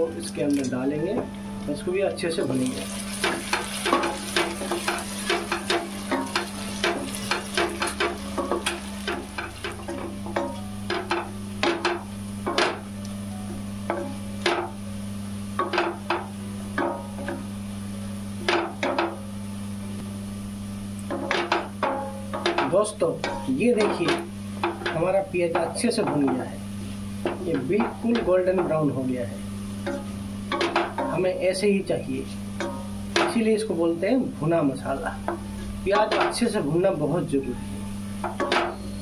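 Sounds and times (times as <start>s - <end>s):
steady low hum: 0.0s - 39.0s
faint sizzle: 1.8s - 11.0s.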